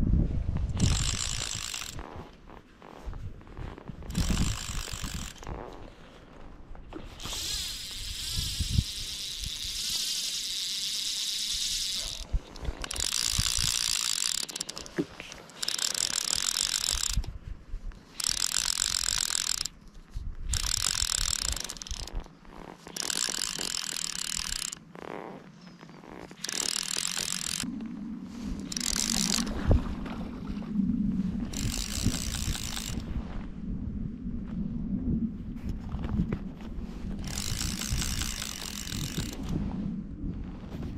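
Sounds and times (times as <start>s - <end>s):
fly reel ratchet buzzing: 0.8s - 2.1s, 4.1s - 5.7s, 7.2s - 17.3s, 18.1s - 19.8s, 20.5s - 22.2s, 22.8s - 24.8s, 26.4s - 27.7s, 28.7s - 29.5s, 31.5s - 33.0s, 37.2s - 39.5s.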